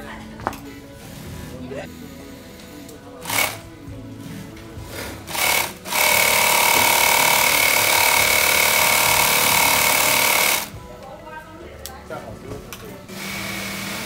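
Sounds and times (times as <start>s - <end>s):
sewing machine whining: 5.3s - 10.7s.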